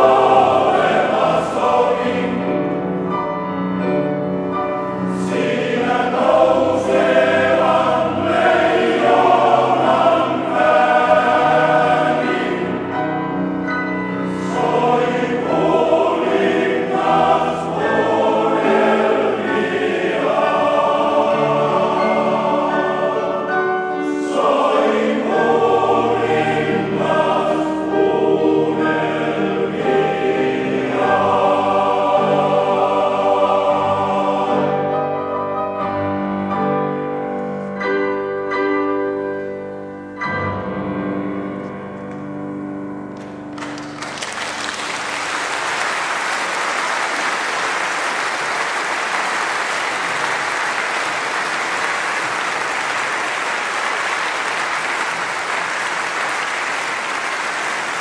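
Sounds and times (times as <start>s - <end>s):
male choir singing: 0.0s - 2.9s, 4.9s - 13.5s, 14.1s - 35.4s
piano: 0.0s - 58.0s
audience applauding: 43.2s - 58.0s.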